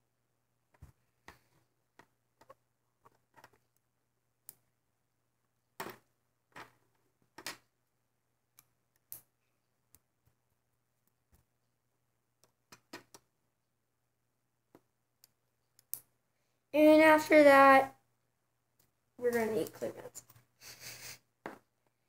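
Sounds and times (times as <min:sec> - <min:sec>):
rubber bands clicking on pegs: 0:08.5 - 0:11.6, 0:12.3 - 0:13.4, 0:14.6 - 0:16.2.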